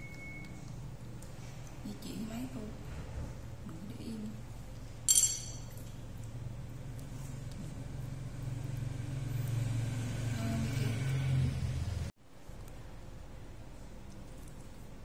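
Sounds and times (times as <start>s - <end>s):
vehicle engine humming: 6.3s - 12.2s.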